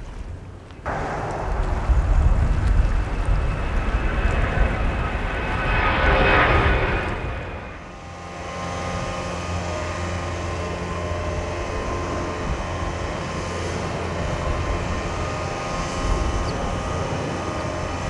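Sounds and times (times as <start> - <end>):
distant jet engines rumbling: 0.8 - 18.0.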